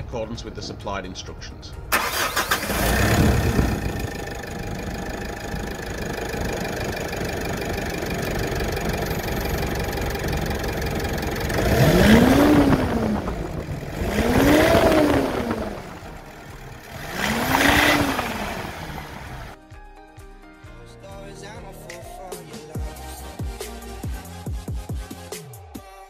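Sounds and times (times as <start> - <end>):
diesel engine idling: 1.9 - 19.6
engine revving: 1.9 - 19.6.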